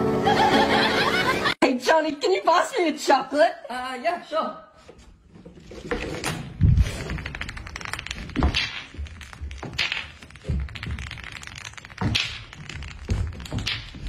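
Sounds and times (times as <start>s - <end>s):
heavier domino thuds: 5.9s - 14.0s
wooden dominoes clacking: 6.6s - 14.0s.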